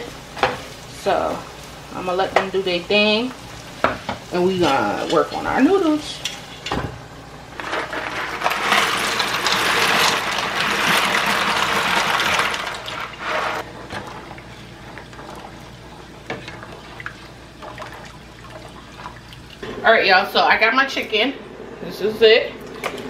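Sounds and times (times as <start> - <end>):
pasta poured into water: 7.6 - 13.6.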